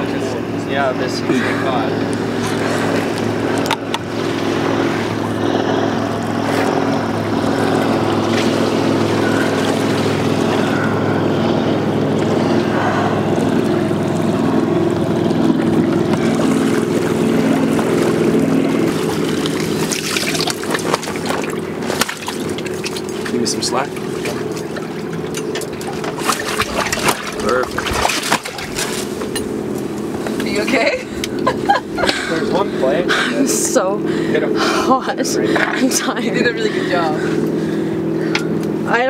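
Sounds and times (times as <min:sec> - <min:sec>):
boat motor humming: 0:00.0 - 0:39.0
water splashing: 0:01.5 - 0:31.8.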